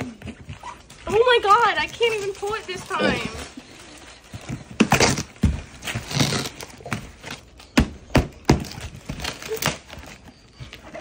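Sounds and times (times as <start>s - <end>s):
cardboard rustling and tearing: 0.2s - 10.6s.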